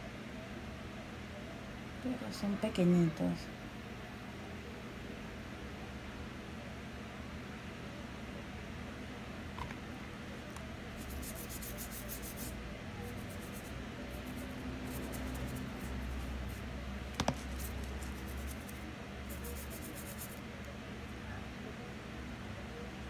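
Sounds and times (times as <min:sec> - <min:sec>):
steady low hum: 0:00.0 - 0:23.0
toothbrush scrubbing cactus: 0:11.0 - 0:16.7, 0:17.3 - 0:20.4.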